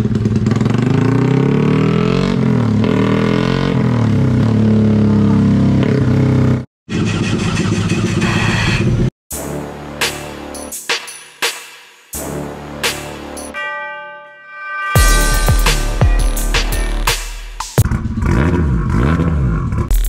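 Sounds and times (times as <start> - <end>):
motorcycle engine revving: 0.0 - 6.7, 17.7 - 20.0.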